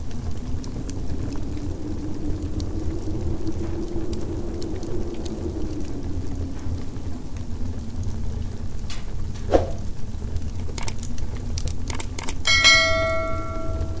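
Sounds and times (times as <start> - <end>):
steady low rumble: 0.0 - 11.8, 12.5 - 14.0
sharp mouse clicks: 10.6 - 11.0, 11.8 - 12.5
bell-like notification chime: 12.5 - 14.0.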